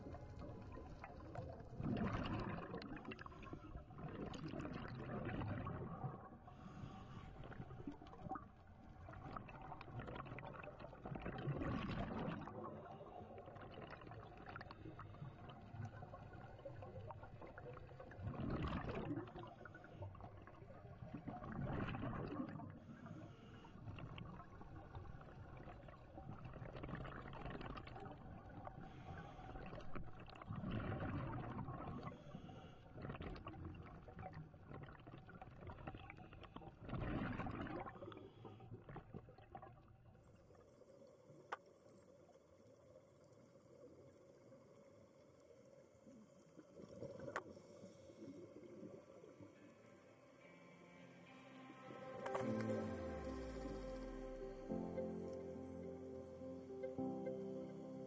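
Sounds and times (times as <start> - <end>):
bubbling exhaled air underwater: 0.0 - 22.9, 29.5 - 32.1, 33.0 - 39.7
faint steady hum: 40.2 - 58.0.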